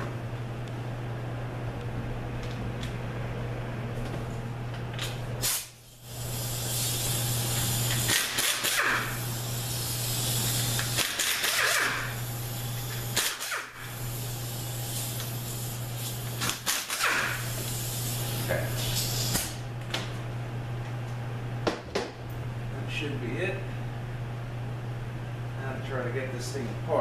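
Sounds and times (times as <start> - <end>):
hissing air exhaust: 5.4 - 16.4, 17.0 - 19.6
air tool running: 5.4 - 19.6.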